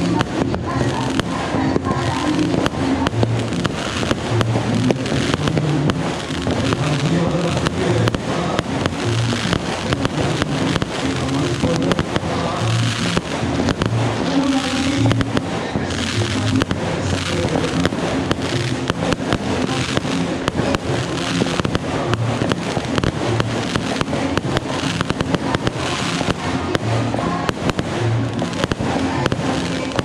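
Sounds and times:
fireworks cracking and banging: 0:00.0 - 0:30.0
music with bass line: 0:00.0 - 0:30.0.

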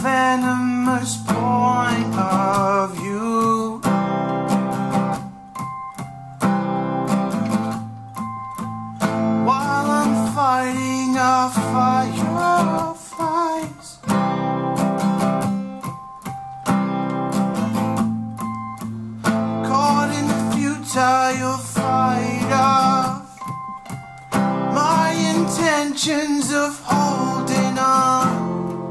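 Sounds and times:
man singing: 0:00.0 - 0:04.0, 0:09.4 - 0:14.1, 0:19.5 - 0:23.6, 0:24.7 - 0:28.9
acoustic guitars playing: 0:00.0 - 0:28.9.

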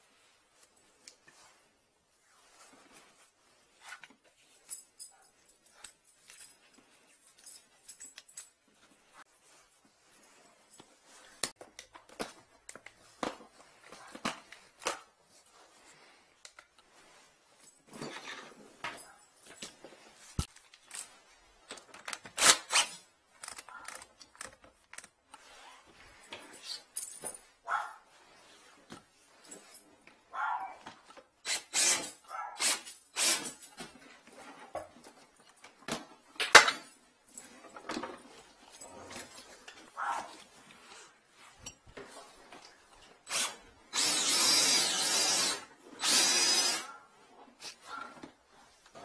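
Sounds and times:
tools and cables clicking and clinking: 0:02.9 - 0:09.6, 0:10.3 - 0:16.9, 0:17.5 - 0:27.5, 0:30.8 - 0:49.0
light metallic clicks and clinks: 0:03.8 - 0:09.2.

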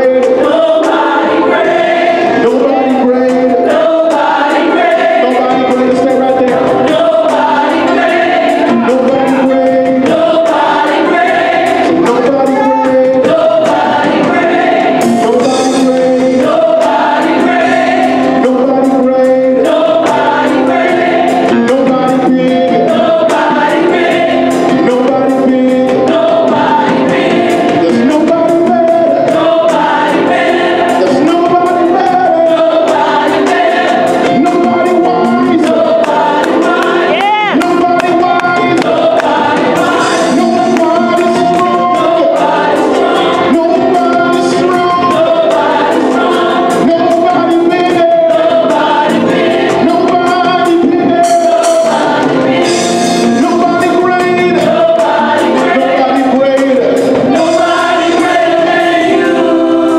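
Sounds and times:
choir singing: 0:00.0 - 0:59.9
organ: 0:00.0 - 0:59.9
drums: 0:38.8 - 0:59.9.

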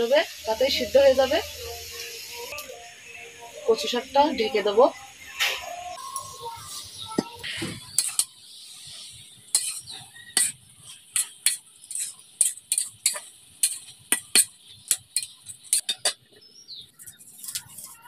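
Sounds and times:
metal spatula scraping a wok: 0:06.7 - 0:16.3, 0:16.9 - 0:18.0.

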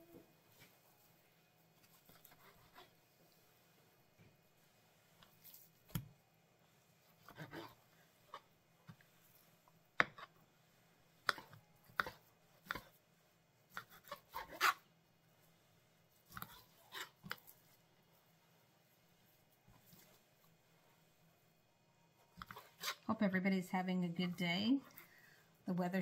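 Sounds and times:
knife scraping on cutting board: 0:01.8 - 0:02.9, 0:07.2 - 0:08.5, 0:13.7 - 0:14.8, 0:22.4 - 0:23.1.

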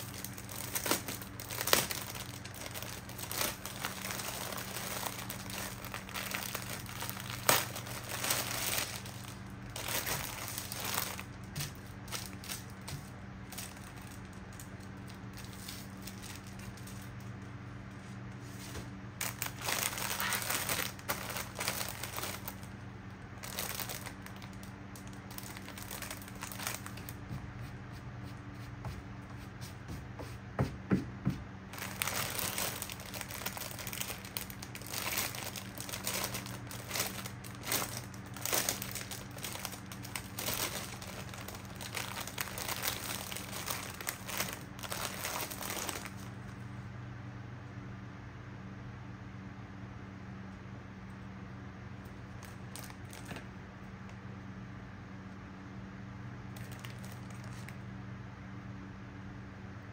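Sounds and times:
plastic bag crinkling: 0:00.0 - 0:27.2, 0:31.7 - 0:46.6, 0:52.3 - 0:53.5, 0:56.6 - 0:57.8
steady low hum: 0:00.0 - 0:59.9.

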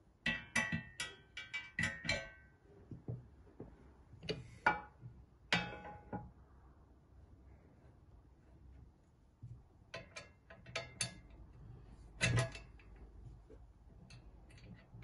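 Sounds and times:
metal shafts clinking: 0:09.9 - 0:15.0.

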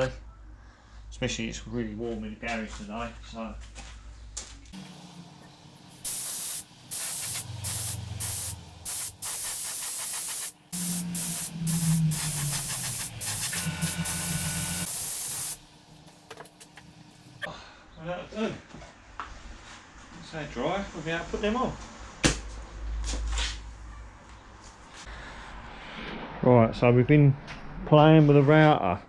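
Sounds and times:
spray gun hissing: 0:05.8 - 0:15.7.

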